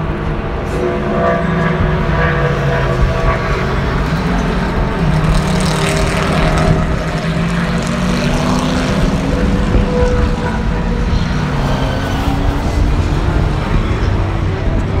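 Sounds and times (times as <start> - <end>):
race car engine droning: 0.0 - 15.0.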